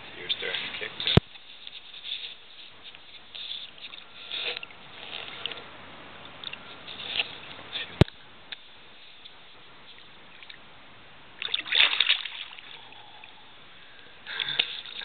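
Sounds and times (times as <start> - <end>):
water splashing: 11.4 - 13.4.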